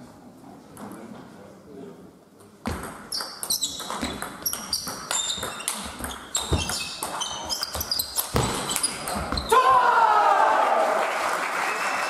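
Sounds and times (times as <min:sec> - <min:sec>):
sports shoes squeaking on floor: 0:02.6 - 0:09.6.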